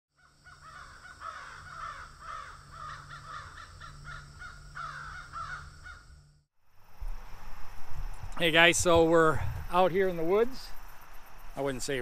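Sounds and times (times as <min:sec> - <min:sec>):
crows cawing: 0:00.2 - 0:06.2
low steady hum: 0:05.6 - 0:12.0.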